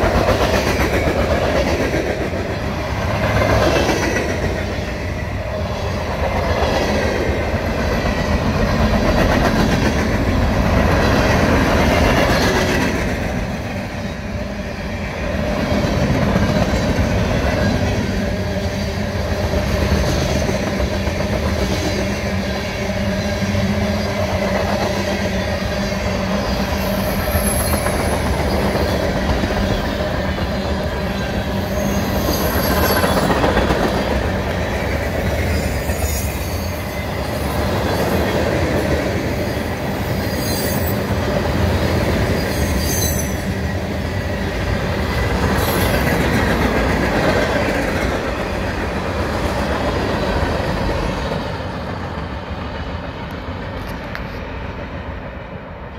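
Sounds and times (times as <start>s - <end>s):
steel wheels rumbling on rail: 0.0s - 55.9s
high wheel squeals: 26.3s - 28.6s, 35.5s - 37.6s, 39.6s - 41.1s, 42.3s - 43.5s.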